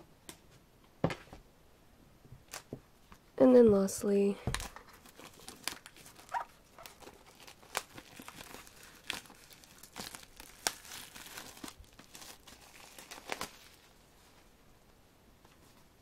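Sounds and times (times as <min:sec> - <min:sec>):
plastic wrap crinkling: 0:04.5 - 0:14.5.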